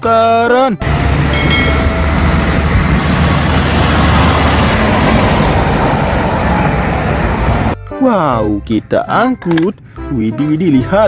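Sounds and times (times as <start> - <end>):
fire engine rumble driving past: 0.8 - 7.8.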